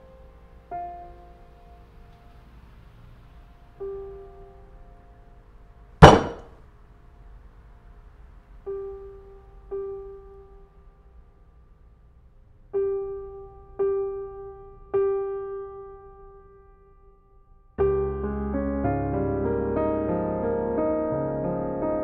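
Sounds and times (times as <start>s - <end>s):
slow piano notes: 0.0s - 6.4s, 8.5s - 11.6s, 12.7s - 22.0s
loud sharp crash: 6.0s - 6.5s.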